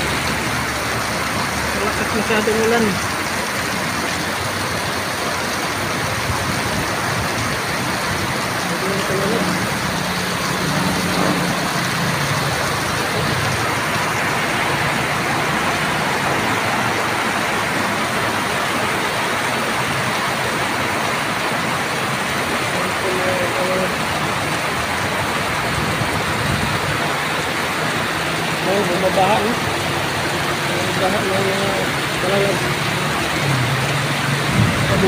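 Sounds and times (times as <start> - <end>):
vehicle engine humming: 0.0 - 20.4
heavy rain pouring: 0.0 - 35.0
running water: 0.0 - 35.0.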